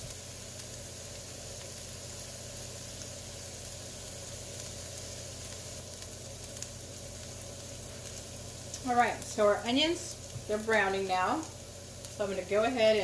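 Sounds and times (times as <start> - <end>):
onions sizzling in a pan: 0.0 - 13.0.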